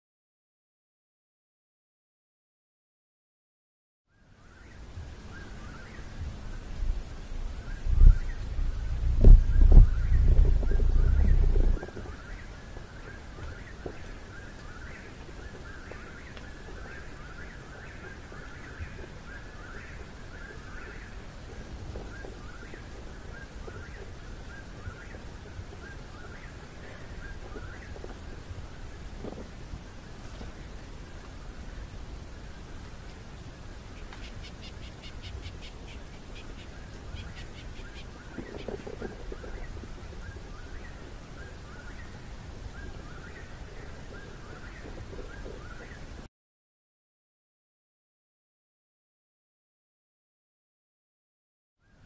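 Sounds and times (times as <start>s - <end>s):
bird chirping: 4.1s - 21.3s, 33.9s - 46.1s
low rumble: 6.2s - 11.9s.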